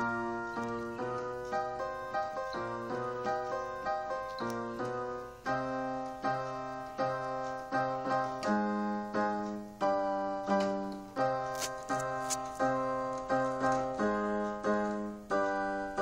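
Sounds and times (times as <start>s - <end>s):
electronic keyboard piano chords: 0.0s - 16.0s.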